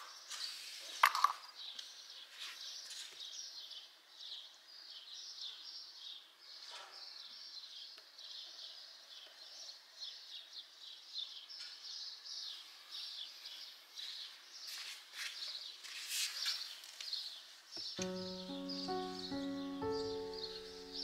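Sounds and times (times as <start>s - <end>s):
birds chirping: 17.8s - 21.0s
piano music: 18.0s - 21.0s.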